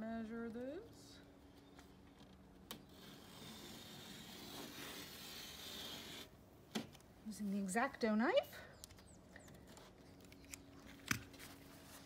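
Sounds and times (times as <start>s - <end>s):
knife rasping cut through vinyl: 3.0s - 6.3s.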